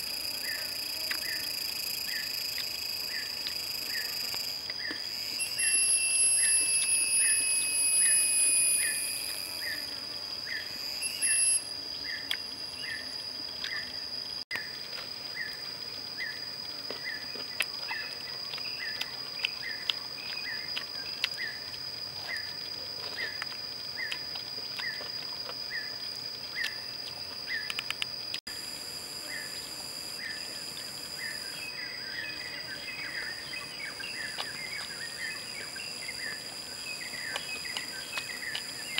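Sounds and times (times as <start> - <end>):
loud high buzz: 0.0 - 11.7
high-pitched insect drone: 0.0 - 38.9.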